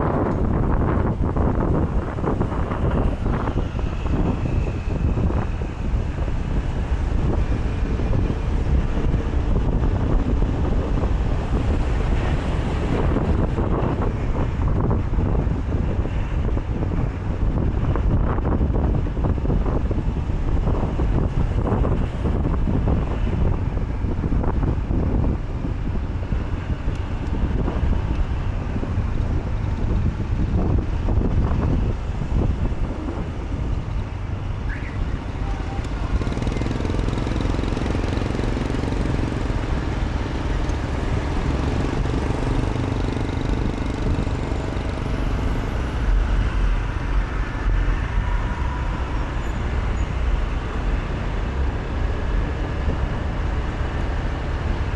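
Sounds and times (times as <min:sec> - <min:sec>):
road traffic noise: 0:00.0 - 0:54.9
vehicle engine hum: 0:00.0 - 0:54.9
wind buffeting microphone: 0:00.0 - 0:54.9.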